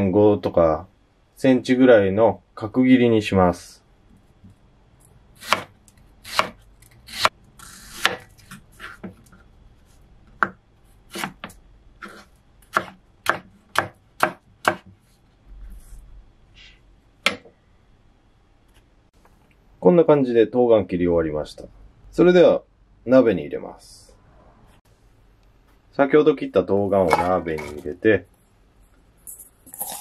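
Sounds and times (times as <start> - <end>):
knife cutting on wooden board: 11.1 - 14.9.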